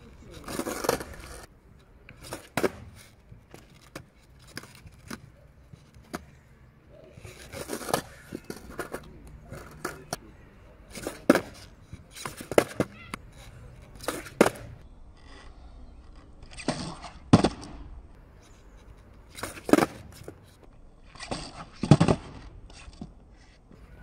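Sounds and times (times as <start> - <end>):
skateboard tail popping: 2.1 - 5.2, 12.2 - 13.3, 14.0 - 14.8, 19.3 - 20.4
skateboard landing on wheels: 2.2 - 5.2, 10.9 - 13.2, 14.0 - 14.8, 16.6 - 17.8, 19.3 - 20.3, 21.2 - 23.1.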